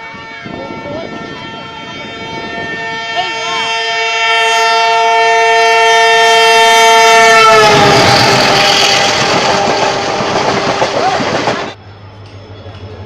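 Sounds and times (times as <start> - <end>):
train horn: 0.0 - 11.0
train coaches rushing and clattering: 7.1 - 13.0.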